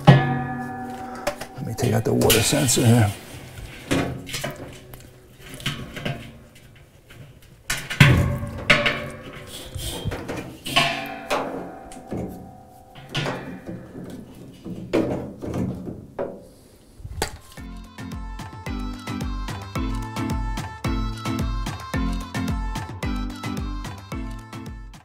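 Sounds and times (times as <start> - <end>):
tools clanking on metal tub: 0.0 - 16.5.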